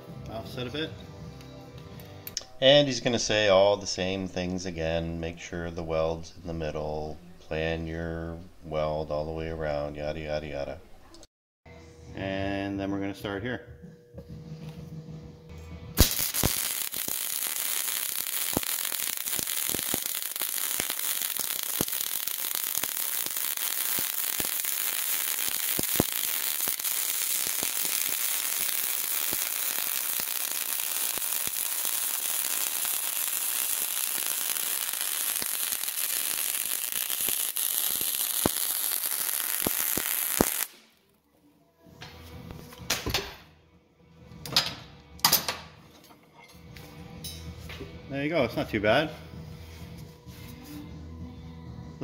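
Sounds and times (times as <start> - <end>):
sharp pops of spatter: 16.0 - 40.8
welding arc crackle and hiss: 16.0 - 40.8.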